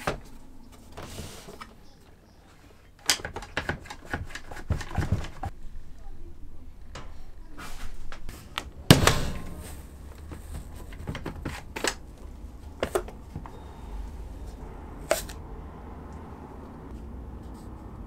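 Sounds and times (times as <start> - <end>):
sharp plastic clicks: 3.0 - 5.5
loud knock: 8.9 - 9.8.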